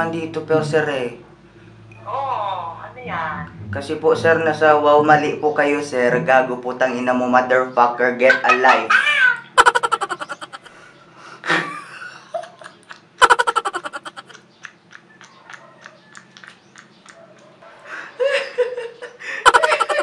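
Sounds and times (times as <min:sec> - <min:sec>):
man laughing hard: 0:08.3 - 0:10.7, 0:11.5 - 0:14.3, 0:18.2 - 0:20.0.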